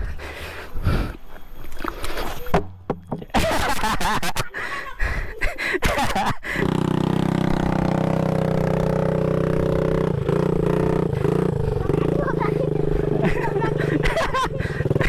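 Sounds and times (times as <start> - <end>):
dirt bike engine idling: 6.5 - 15.0.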